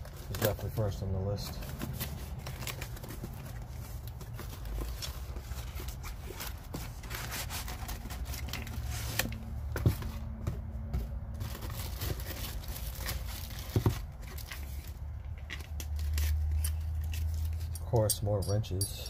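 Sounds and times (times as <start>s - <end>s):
cardboard packaging rustling: 0.0s - 17.7s.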